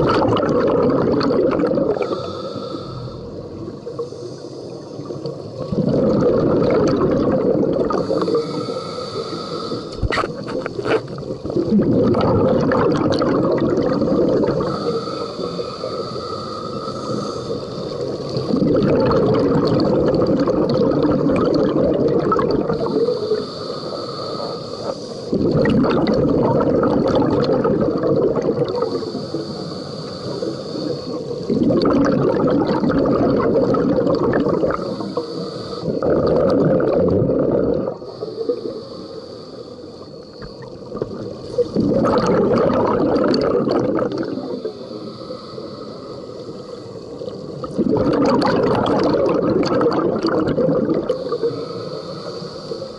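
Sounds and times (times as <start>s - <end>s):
bubbling exhalations: 0.0s - 2.8s, 5.6s - 24.2s, 24.8s - 29.6s, 30.2s - 38.6s, 40.6s - 44.8s, 47.5s - 52.2s
regulator hiss on inhalation: 1.6s - 5.5s, 7.4s - 11.6s, 14.0s - 18.6s, 21.7s - 25.5s, 27.0s - 31.7s, 32.4s - 36.9s, 37.6s - 42.4s, 43.5s - 47.8s, 49.6s - 52.9s.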